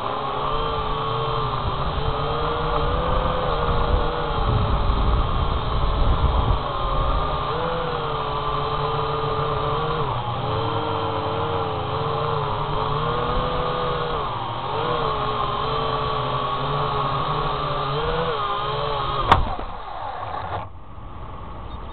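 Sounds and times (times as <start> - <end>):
drone propellers whining: 0.0 - 21.9
drone landing knock: 19.2 - 19.7.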